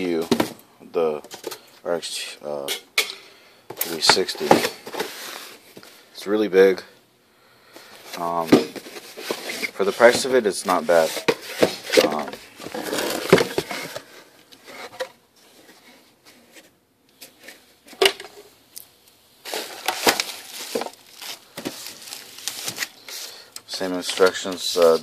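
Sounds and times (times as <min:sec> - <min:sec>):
packaging rustling: 0:08.1 - 0:14.3, 0:19.4 - 0:23.4.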